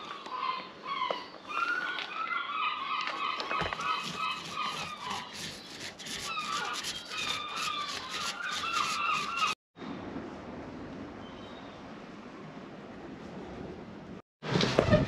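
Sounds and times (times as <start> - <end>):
paint roller rubbing: 3.5 - 9.6.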